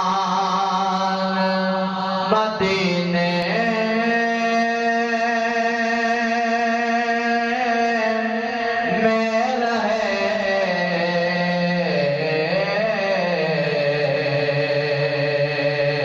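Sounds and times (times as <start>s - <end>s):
man singing unaccompanied: 0.0s - 16.0s.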